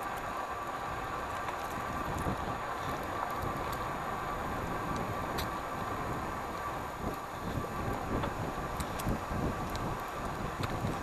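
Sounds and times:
bicycle tyres on road: 0.0s - 11.0s
wind rush on microphone: 0.0s - 11.0s
faint ticks: 6.5s - 11.0s.

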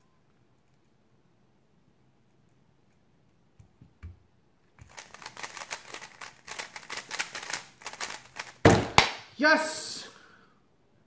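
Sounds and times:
puzzle cube clicking: 4.8s - 8.6s.

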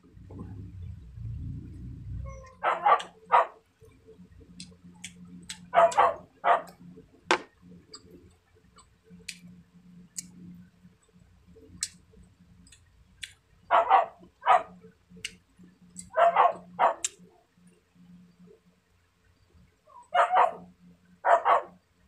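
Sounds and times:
dog barking: 2.4s - 3.6s, 5.7s - 6.8s, 13.7s - 14.8s, 16.1s - 17.1s, 20.1s - 21.8s.

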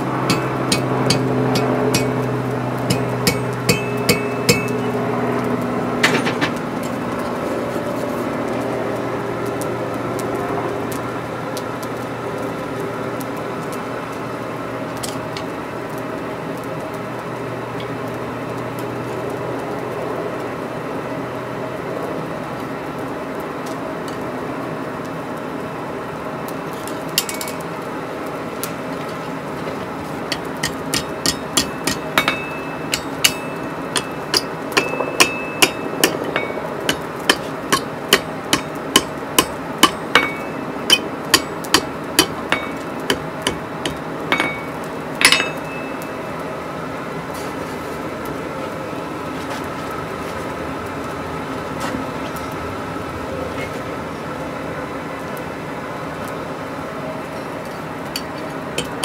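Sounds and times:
hammer striking hot steel on anvil: 0.0s - 5.2s, 6.0s - 7.3s, 27.2s - 27.7s, 30.2s - 46.3s, 58.1s - 59.0s
steady hum: 0.0s - 18.7s, 25.5s - 59.0s.

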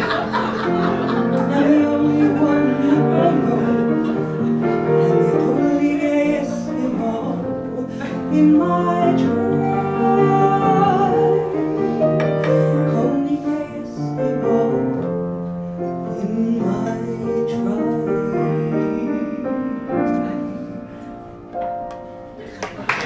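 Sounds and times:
grand piano playing chords: 0.0s - 22.8s
woman singing: 1.5s - 4.1s, 5.1s - 11.8s.

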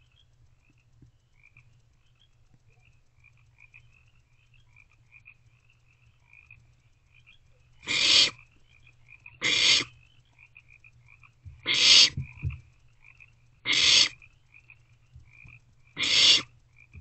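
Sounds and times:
owlets hissing begging calls: 7.8s - 8.4s, 9.4s - 10.0s, 11.6s - 12.4s, 13.6s - 14.2s, 16.0s - 16.5s.

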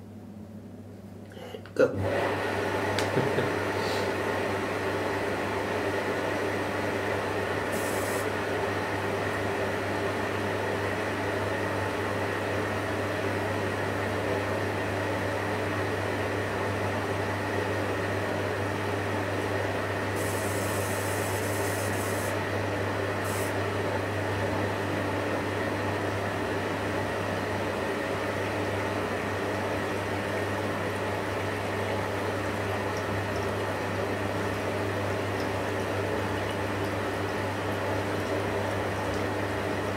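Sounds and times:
washing machine humming: 0.0s - 39.9s
water running into drum: 28.0s - 39.9s.

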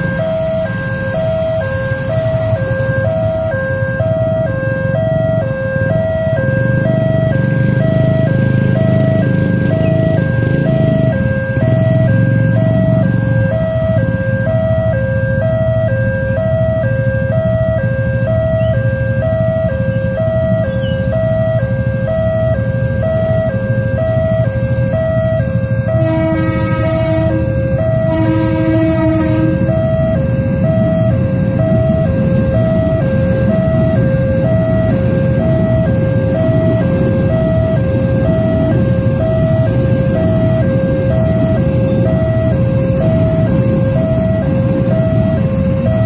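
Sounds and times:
level crossing two-tone alarm: 0.0s - 46.0s
motorcycle engines idling: 0.0s - 46.0s
train horn blasts: 25.8s - 30.0s.

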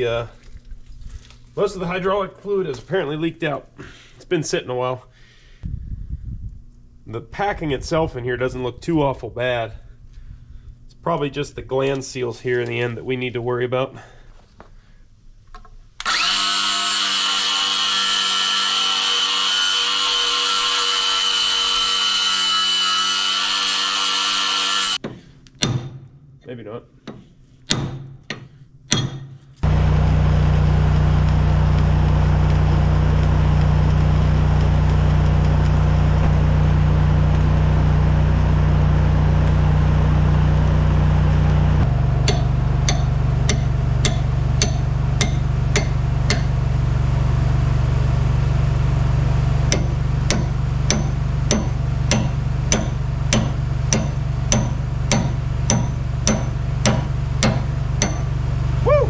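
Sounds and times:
hammer striking metal: 25.0s - 26.2s, 27.1s - 29.5s, 42.0s - 46.6s, 49.7s - 58.4s
engine running: 29.6s - 59.0s.

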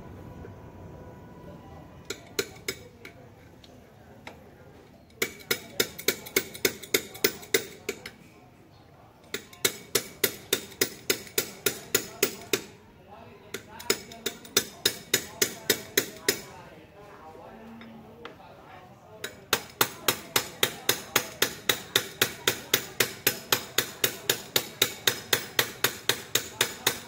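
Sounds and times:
hand tool clicking on metal: 5.1s - 8.2s, 9.2s - 12.7s, 13.6s - 16.4s, 19.2s - 27.0s.

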